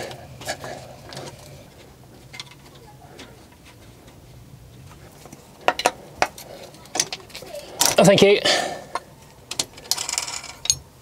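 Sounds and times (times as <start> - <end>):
spanner clinking on metal nuts: 8.9 - 10.9.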